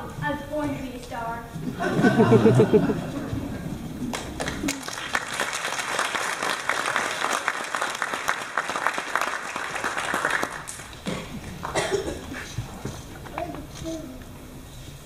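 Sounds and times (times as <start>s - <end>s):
audience applauding: 1.8s - 12.5s.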